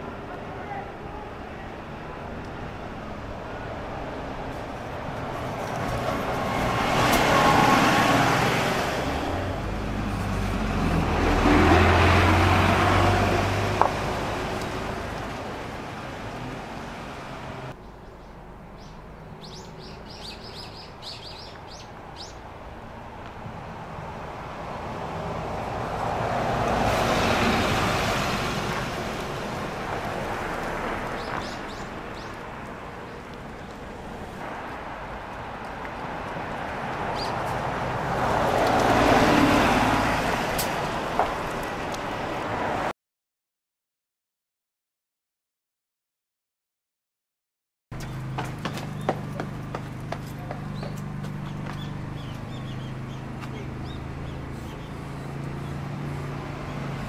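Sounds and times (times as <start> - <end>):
bus passing: 0.0 - 42.9, 47.9 - 57.0
small birds chirping: 17.8 - 22.4, 31.1 - 32.4, 37.2 - 37.5, 48.0 - 49.4, 50.4 - 55.9.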